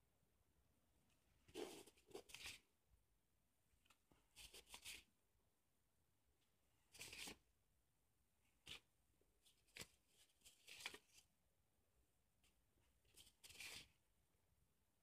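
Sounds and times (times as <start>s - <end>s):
paper rustling and crackling: 9.5s - 11.2s, 13.1s - 13.9s.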